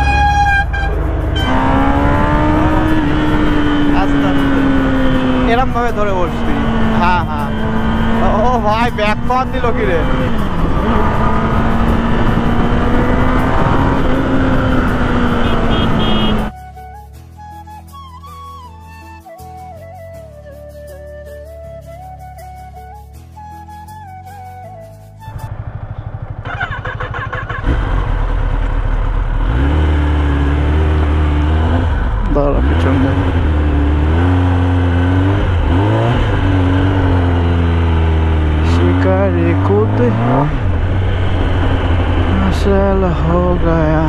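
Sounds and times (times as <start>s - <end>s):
motorcycle engine running: 0.0s - 16.5s, 25.3s - 44.0s.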